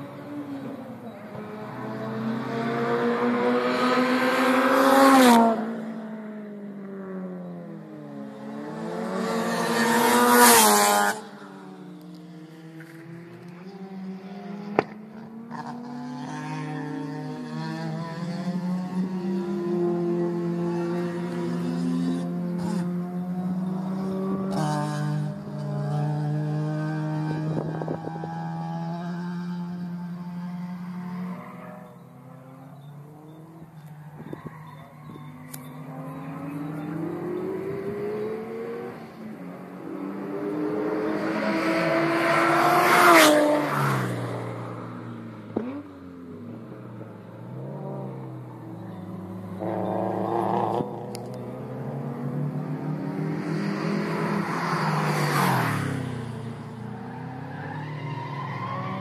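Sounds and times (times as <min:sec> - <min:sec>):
race cars passing: 0:00.0 - 0:59.0.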